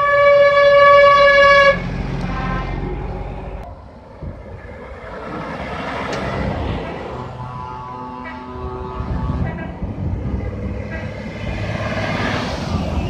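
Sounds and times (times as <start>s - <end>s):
truck horn blast: 0.0s - 3.2s, 6.4s - 11.9s
truck engines driving past: 0.0s - 13.0s.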